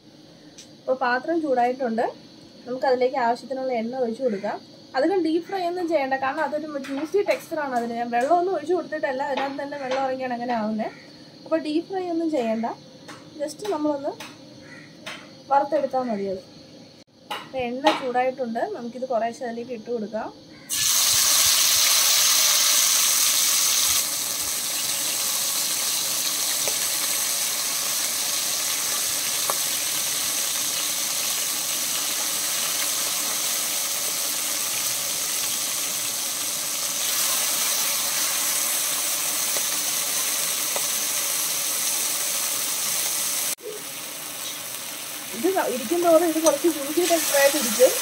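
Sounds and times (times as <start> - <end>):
food sizzling in hot oil: 20.7 - 48.0.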